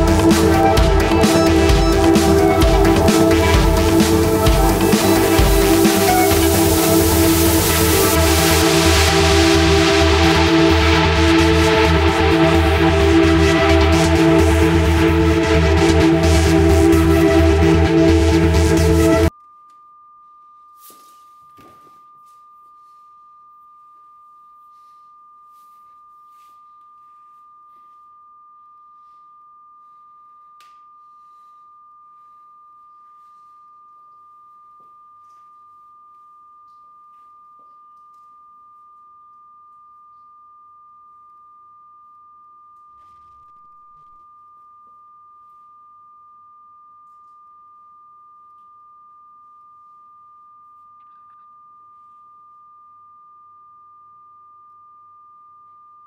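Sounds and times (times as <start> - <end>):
high-pitched pure tone: 0.0 - 19.8.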